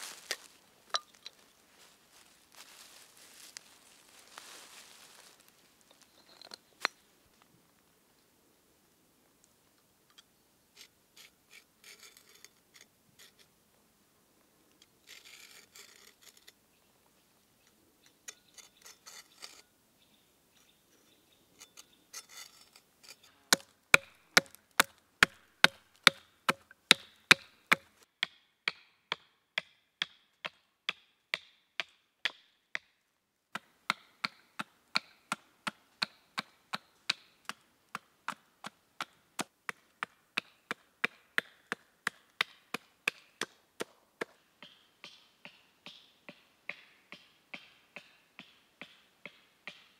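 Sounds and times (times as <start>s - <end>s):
hatchet chopping wood: 23.5s - 32.9s, 33.5s - 49.9s.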